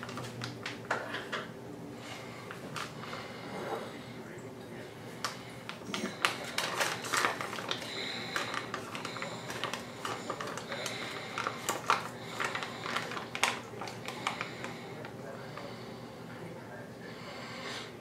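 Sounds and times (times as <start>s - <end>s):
plastic bag crinkling: 0.0s - 0.8s, 5.2s - 15.7s.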